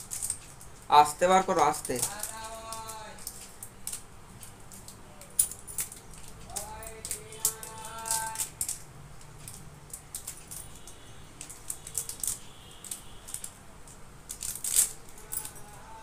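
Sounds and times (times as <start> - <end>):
bangles clinking and jingling: 0.0 - 16.0.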